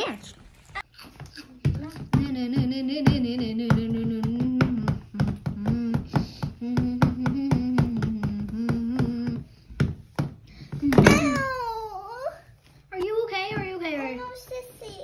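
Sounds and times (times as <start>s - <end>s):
dolls' feet tapping on wooden floor: 0.7s - 11.8s.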